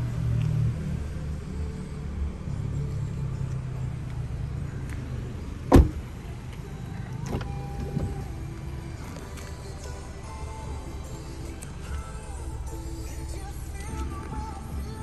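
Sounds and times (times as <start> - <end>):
car door slamming: 5.7 - 6.1, 7.2 - 8.3.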